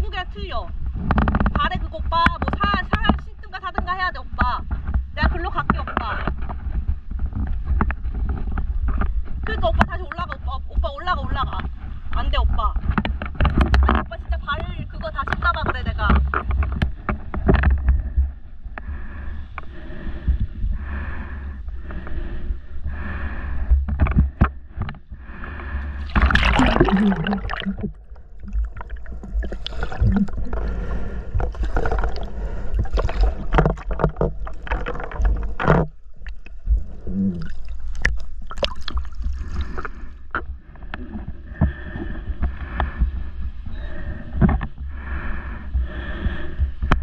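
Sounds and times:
seawater sloshing and gurgling: 0.0s - 47.0s
low rumble: 17.0s - 47.0s
water splash: 26.0s - 36.6s, 37.3s - 40.5s.

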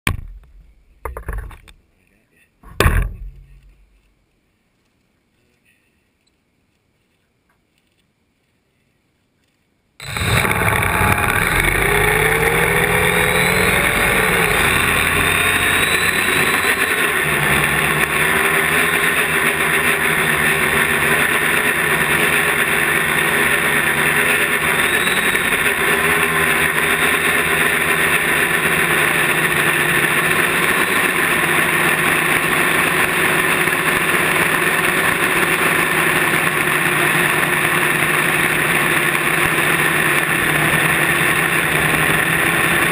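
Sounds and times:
drone propellers whirring: 10.0s - 42.9s.

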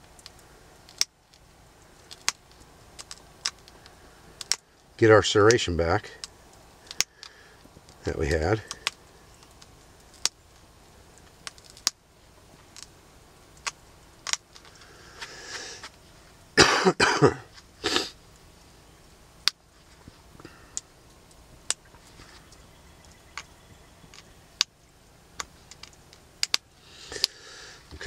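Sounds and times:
stone flakes clicking off: 0.0s - 4.9s, 6.2s - 12.0s, 12.6s - 15.3s, 25.4s - 28.0s
person coughing: 16.6s - 18.1s.

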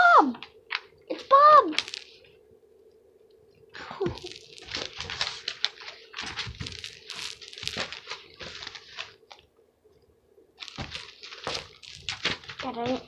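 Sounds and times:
paper rustling and crinkling: 1.8s - 2.2s, 3.8s - 9.4s, 10.6s - 13.0s.

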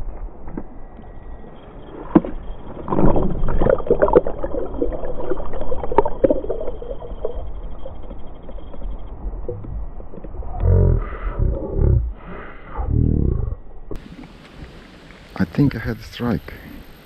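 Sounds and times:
water splashing against hull: 2.1s - 10.4s.

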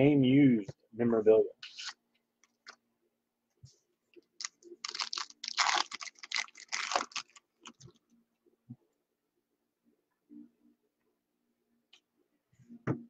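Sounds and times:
cards and packaging rustling: 4.4s - 7.9s.

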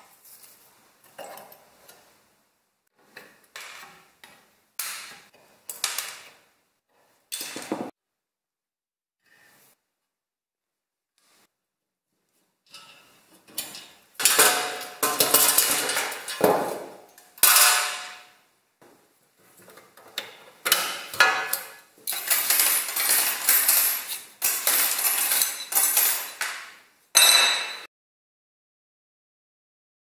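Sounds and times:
metal rods scraping and clinking: 12.7s - 16.8s, 20.7s - 26.5s.

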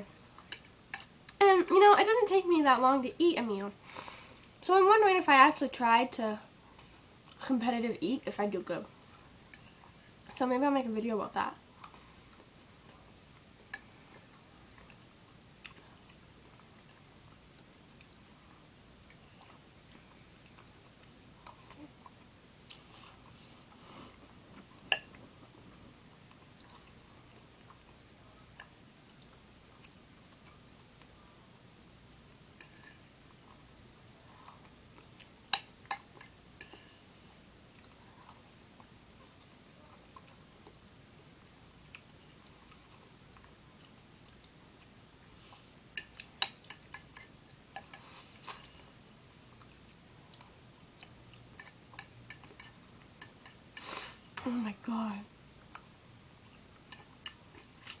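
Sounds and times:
person chewing food: 11.8s - 31.2s, 37.6s - 40.9s, 41.8s - 53.8s, 55.6s - 58.0s.

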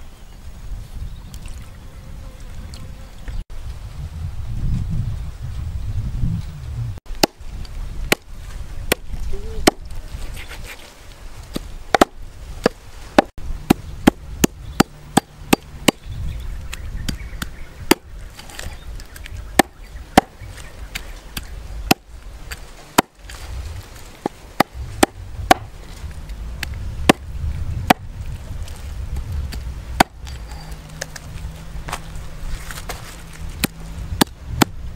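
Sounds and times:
knife striking wooden chopping block: 11.9s - 16.0s, 24.2s - 25.7s, 30.0s - 30.4s.

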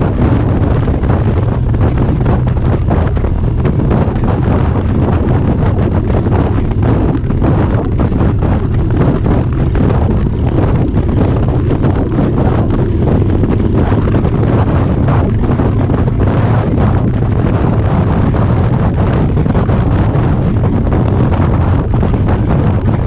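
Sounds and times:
motorcycle engine rumble: 0.0s - 23.0s
wind buffeting microphone: 0.0s - 23.0s.

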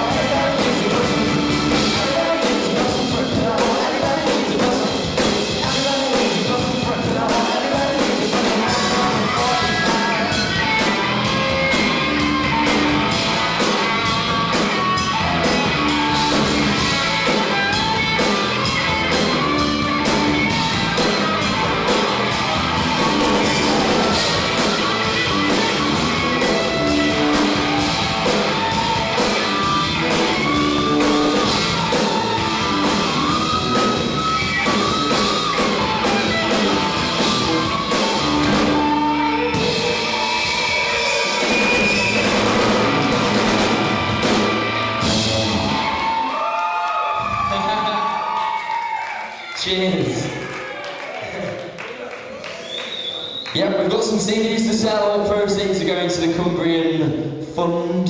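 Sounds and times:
electric guitars: 0.0s - 46.3s
steady drum beat: 0.0s - 46.3s
rock band playing live: 0.0s - 48.9s.

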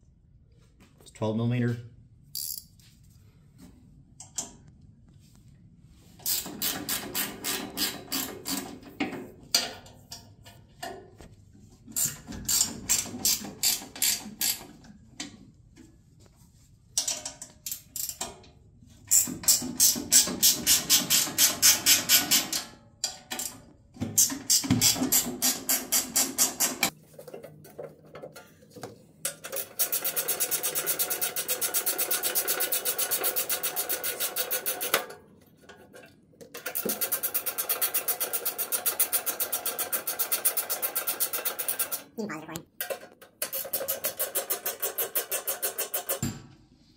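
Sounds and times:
ratchet wrench clicking: 2.3s - 2.7s, 6.2s - 8.3s, 12.0s - 14.6s.

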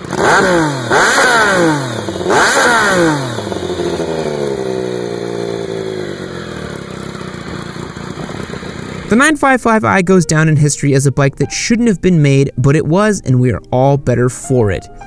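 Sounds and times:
motorcycle engine revving: 0.0s - 9.3s.

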